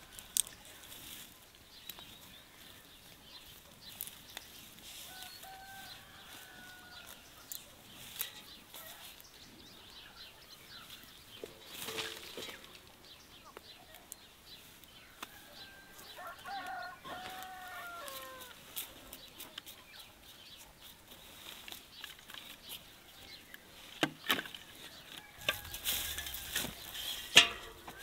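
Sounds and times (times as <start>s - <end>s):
carrots being handled: 0.0s - 9.3s, 10.8s - 13.0s, 13.8s - 28.0s
rooster crowing: 5.0s - 7.3s, 15.2s - 18.6s, 25.2s - 26.6s.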